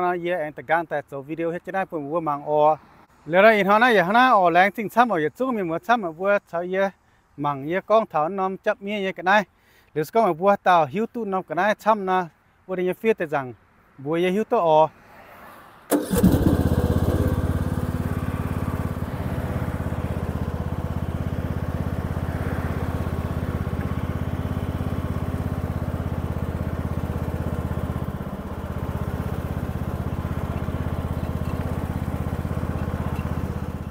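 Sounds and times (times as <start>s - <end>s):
riding lawn mower engine running: 15.9s - 33.9s.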